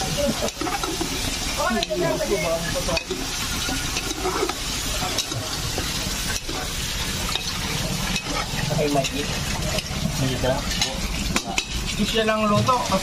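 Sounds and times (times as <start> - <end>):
meat sizzling in a pan: 0.0 - 13.0
utensil scraping a pan: 0.0 - 13.0.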